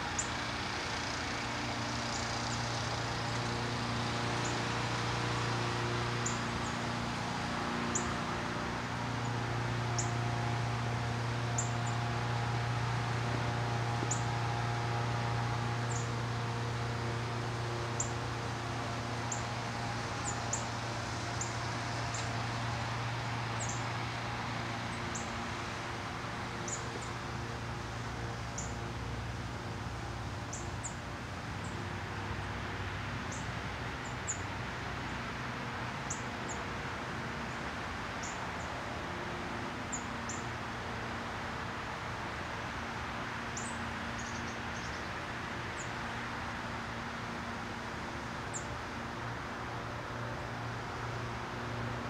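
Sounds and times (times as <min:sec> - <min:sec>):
songbirds chipping: 0:00.1 - 0:25.5, 0:26.5 - 0:29.7, 0:30.4 - 0:32.0, 0:33.2 - 0:35.3, 0:36.0 - 0:36.8, 0:37.4 - 0:40.6, 0:43.5 - 0:46.1, 0:48.4 - 0:48.8.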